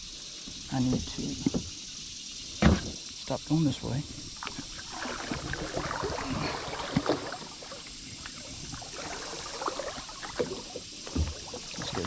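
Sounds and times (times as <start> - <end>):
water lapping against canoe hull: 0.0 - 12.0
light knocks on canoe: 0.5 - 1.7, 2.6 - 3.1, 6.8 - 7.5, 10.3 - 12.0.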